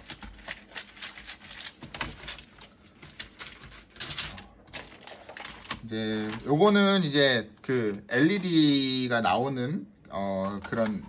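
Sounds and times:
plastic keyboard clicks and knocks: 0.0s - 2.4s, 10.4s - 11.0s.

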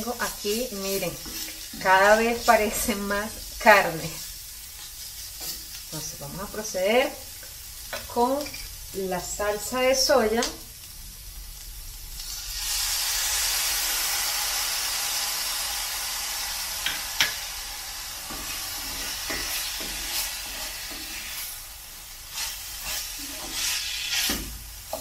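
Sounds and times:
wooden spoon scraping a pan: 0.0s - 6.0s, 18.2s - 21.6s, 22.3s - 25.0s
sauce sizzling in hot skillet: 0.0s - 25.0s.

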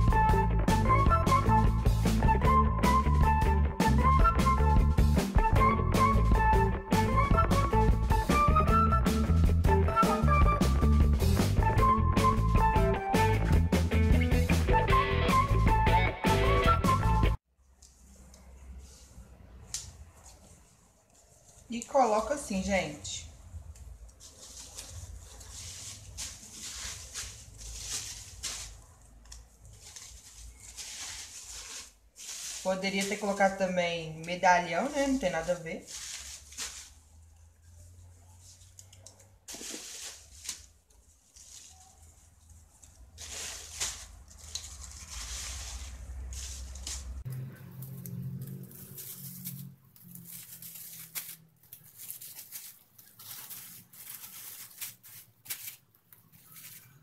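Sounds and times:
plastic bags rustling: 23.9s - 57.0s.

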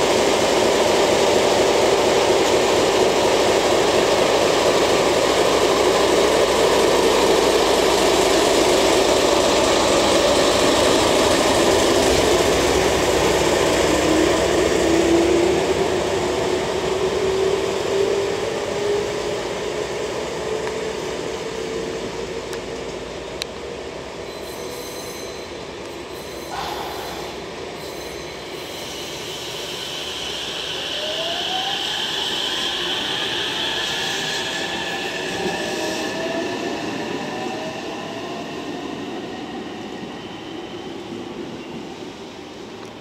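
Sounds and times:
diesel locomotive engine running: 0.0s - 24.2s.

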